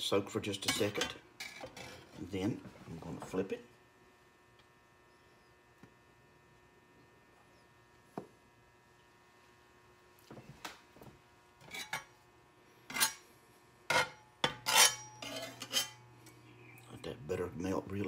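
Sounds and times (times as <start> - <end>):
faint electrical hum: 0.0 - 18.0
spatula scraping skillet: 0.7 - 2.3, 11.6 - 12.1, 12.8 - 13.2, 13.9 - 16.1.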